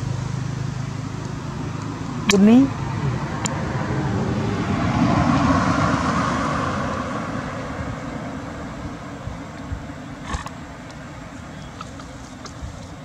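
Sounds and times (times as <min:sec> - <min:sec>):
vehicle engine passing by: 0:00.0 - 0:09.2.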